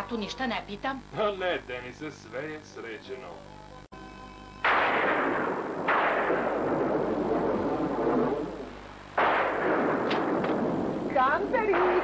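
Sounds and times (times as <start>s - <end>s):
thunder claps: 4.7s - 12.0s.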